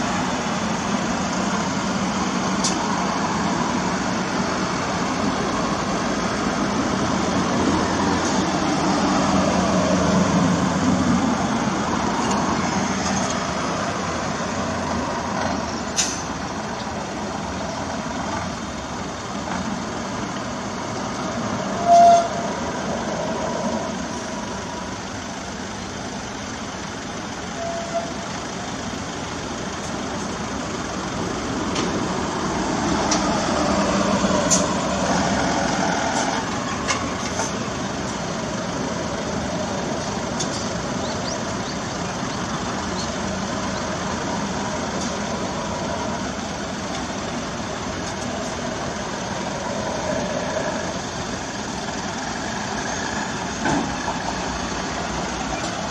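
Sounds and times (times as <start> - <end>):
garbage trucks driving past: 0.0 - 55.9
short high-pitched squeak: 21.8 - 22.4, 27.6 - 28.2.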